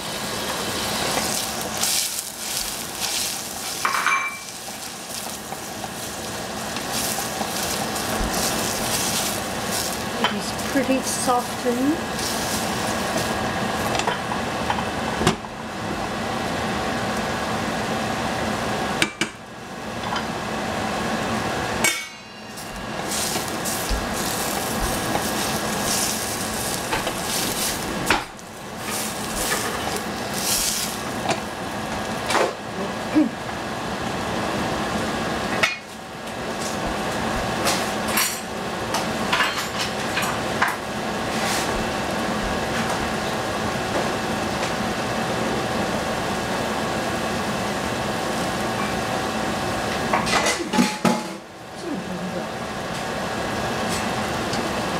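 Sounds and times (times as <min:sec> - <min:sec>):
peppers sizzling in a pan: 0:00.0 - 0:15.2, 0:21.8 - 0:33.1.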